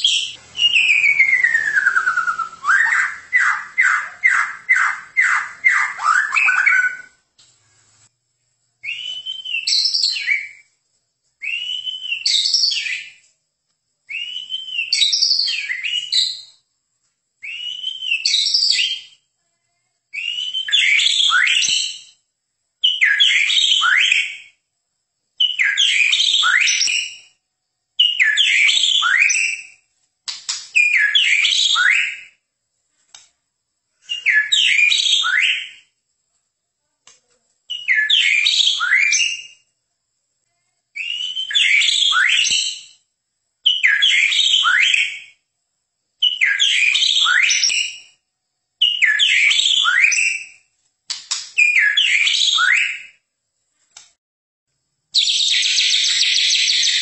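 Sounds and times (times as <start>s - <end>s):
bird singing whistled phrases: 0.0s - 7.2s, 8.8s - 10.7s, 11.4s - 13.2s, 14.1s - 16.6s, 17.4s - 19.2s, 20.1s - 22.2s, 22.8s - 24.6s, 25.4s - 27.4s, 28.0s - 29.8s, 30.8s - 32.4s, 34.0s - 35.9s, 37.7s - 39.7s, 41.0s - 43.0s, 43.6s - 45.4s, 46.2s - 48.2s, 48.8s - 50.7s, 51.6s - 53.2s, 55.2s - 57.0s.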